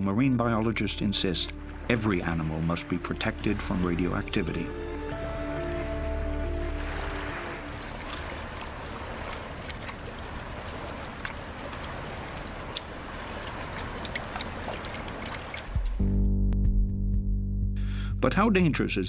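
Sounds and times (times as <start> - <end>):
sea water sloshing and splashing: 1.5 - 16.0
small sharp splashes: 6.6 - 16.0.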